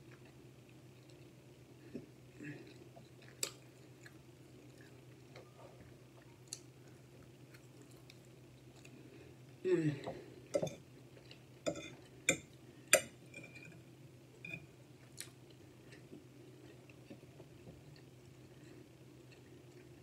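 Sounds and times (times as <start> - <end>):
faint chewing: 0.0 - 9.3, 14.5 - 20.0
fork clinking against plate: 11.7 - 13.7.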